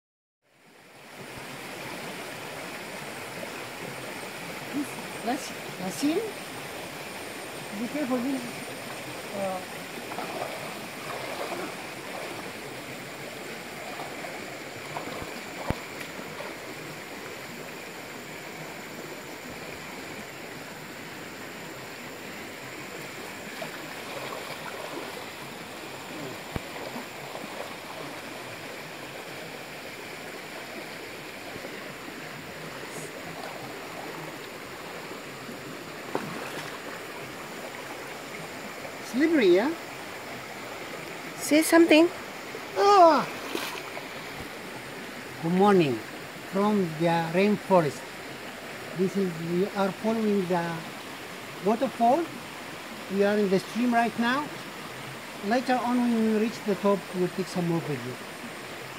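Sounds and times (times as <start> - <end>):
stream rushing: 0.5 - 58.9
splashes from wading: 7.7 - 17.5, 22.8 - 38.8, 41.9 - 44.8.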